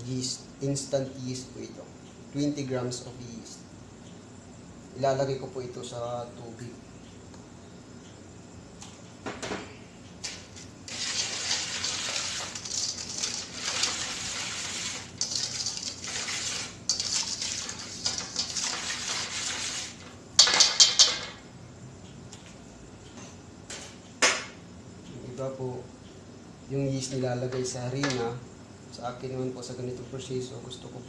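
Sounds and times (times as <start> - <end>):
whisk scraping metal bowl: 10.9 - 20.2
whisk clanking against bowl: 10.9 - 21.3.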